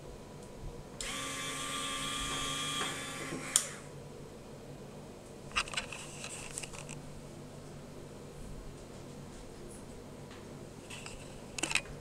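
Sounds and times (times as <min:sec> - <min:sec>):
winch motor whining: 0:01.0 - 0:03.9.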